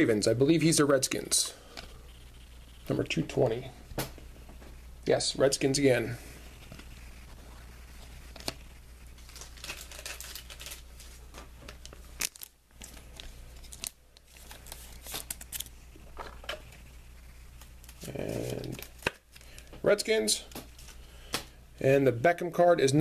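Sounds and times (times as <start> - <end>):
cards rustling: 5.6 - 16.7, 17.6 - 19.8.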